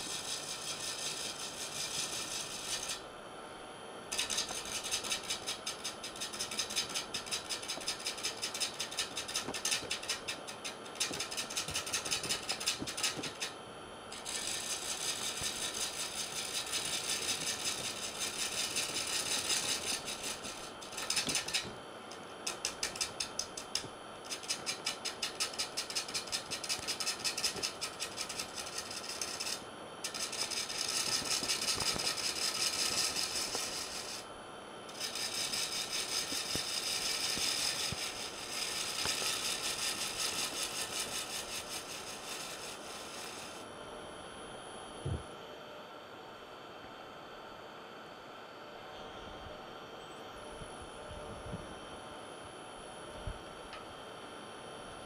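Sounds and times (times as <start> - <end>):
gouge scraping wood on a lathe: 0.0 - 3.0, 4.2 - 13.6, 14.2 - 21.7, 22.5 - 34.2, 34.9 - 43.6.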